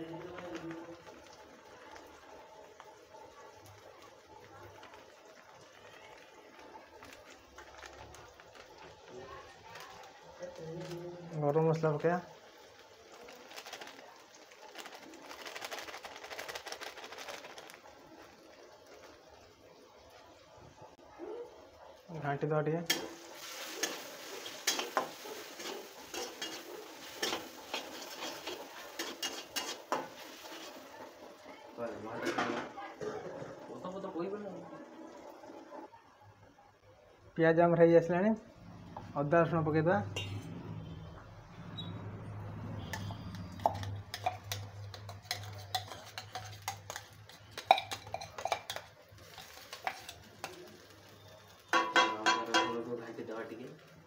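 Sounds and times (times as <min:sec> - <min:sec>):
metal spatula scraping wok: 0:22.9 - 0:31.2, 0:41.7 - 0:52.8
spoon clinking on steel tumbler: 0:43.0 - 0:50.6.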